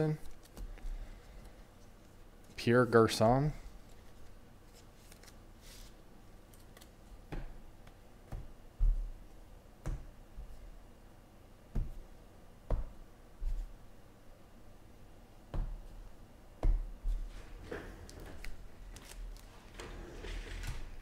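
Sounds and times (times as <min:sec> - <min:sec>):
cards rustling: 0:03.8 - 0:07.0, 0:18.1 - 0:19.6.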